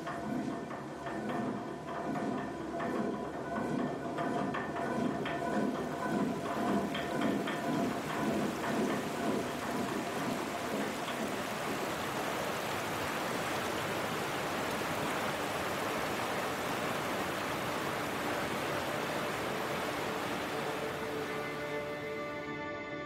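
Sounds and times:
river rushing: 0:05.9 - 0:22.4.

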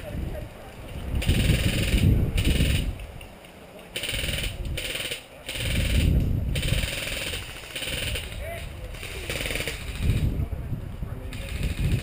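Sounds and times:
electric guns firing bursts: 0:04.0 - 0:10.2.

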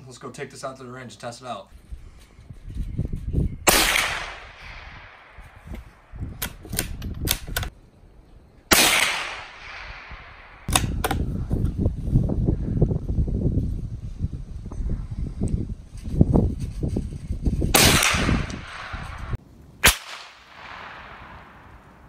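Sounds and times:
rifle shots cracking: 0:03.7 - 0:05.4, 0:08.7 - 0:10.9, 0:17.8 - 0:21.8.

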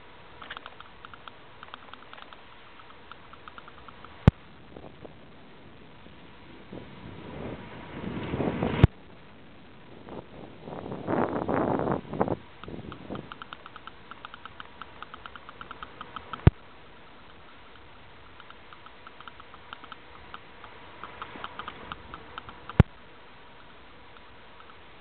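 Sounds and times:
bicycle freewheel ticking: 0:00.4 - 0:04.3, 0:12.6 - 0:16.6, 0:17.2 - 0:25.0.

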